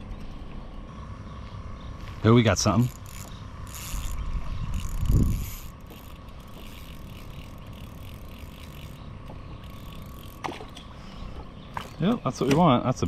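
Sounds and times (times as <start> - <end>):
fishing reel ticking: 2.8 - 10.6.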